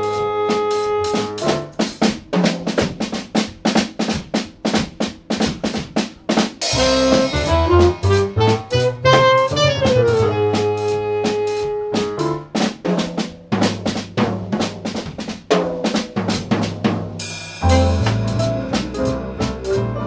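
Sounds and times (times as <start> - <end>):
saxophone melody: 0.0 - 1.8, 6.7 - 12.4, 17.6 - 20.0
piano: 0.0 - 3.1, 6.7 - 13.2, 16.5 - 20.0
drum kit: 0.0 - 20.0
walking upright bass: 6.7 - 11.4, 17.6 - 20.0.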